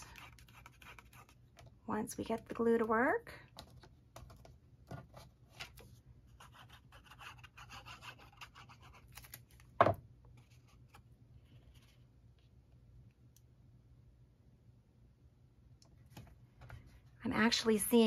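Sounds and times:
glue bottle tip scratching card: 0:00.2 - 0:01.4.

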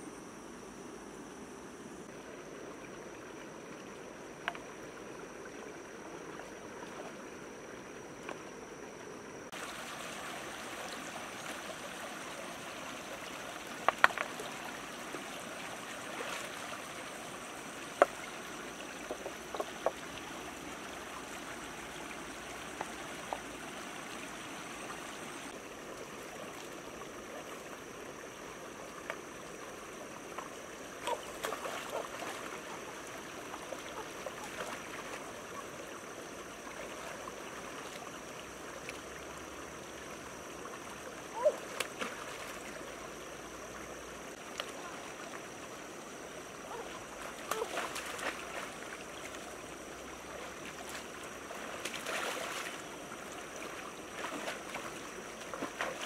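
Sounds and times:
stream running over rocks: 0:00.0 - 0:56.0
stones knocking in water: 0:13.7 - 0:14.6.

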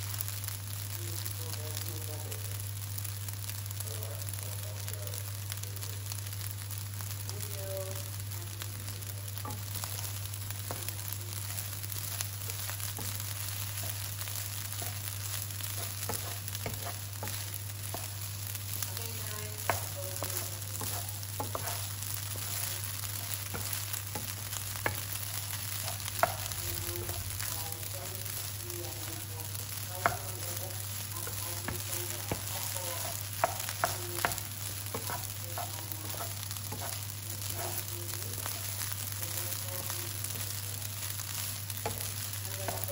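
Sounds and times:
rice sizzling in oil: 0:00.0 - 0:42.9
spatula scraping and tapping pan: 0:09.3 - 0:27.6, 0:30.0 - 0:39.0, 0:41.0 - 0:42.9.

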